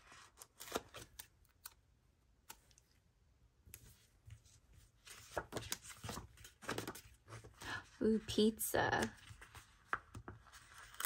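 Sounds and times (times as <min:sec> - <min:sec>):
paper sticker sheets rustling: 0:03.8 - 0:11.0.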